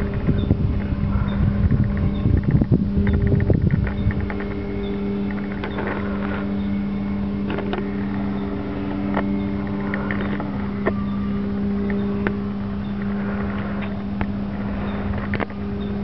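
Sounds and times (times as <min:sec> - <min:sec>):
model airplane motor droning: 0:00.0 - 0:16.0
wind buffeting microphone: 0:00.0 - 0:16.0.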